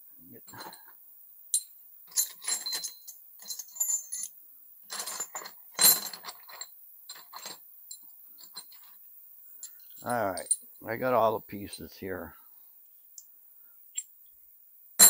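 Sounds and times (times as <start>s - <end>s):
small metal parts clinking: 0.4s - 0.9s, 1.5s - 9.0s, 9.6s - 10.8s.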